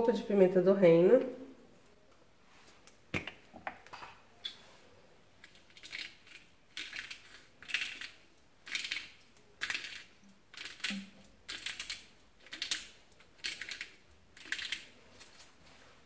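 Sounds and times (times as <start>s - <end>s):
pepper mill grinding: 5.4s - 14.9s.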